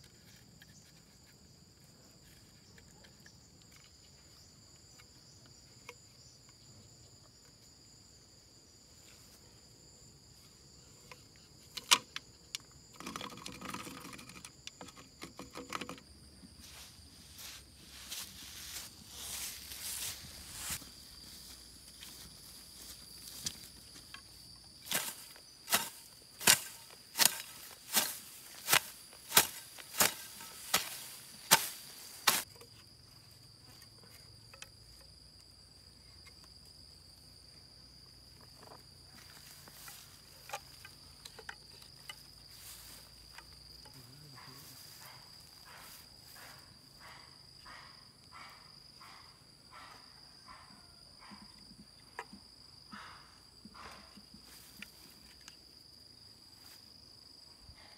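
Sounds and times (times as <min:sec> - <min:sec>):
high insect drone: 0:00.0 - 0:57.9
hands rustling soil and string: 0:10.2 - 0:37.4, 0:38.2 - 0:47.1
barefoot footsteps in grass: 0:16.6 - 0:32.5.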